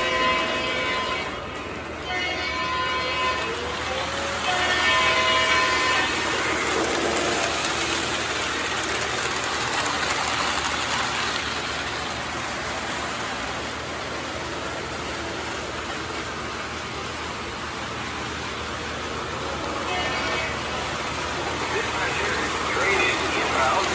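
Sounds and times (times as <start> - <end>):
model train wheels rumbling: 0.0 - 23.9.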